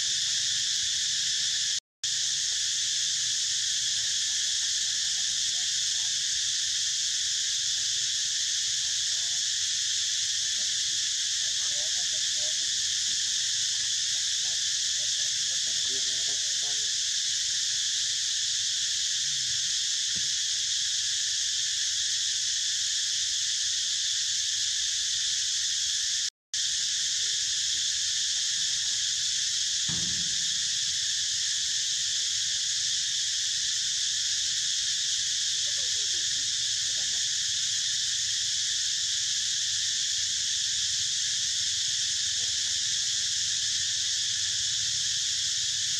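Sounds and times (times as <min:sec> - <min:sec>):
insects droning: 0:00.0 - 0:45.9
soft low thump: 0:29.9 - 0:31.8.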